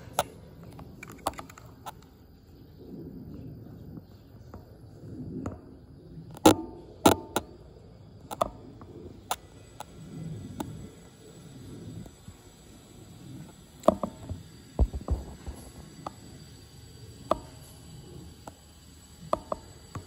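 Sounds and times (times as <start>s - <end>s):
faint low rumble: 0.0s - 19.2s
sharp clicks and knocks: 6.3s - 7.6s, 8.2s - 9.9s, 13.8s - 16.2s, 19.2s - 20.0s.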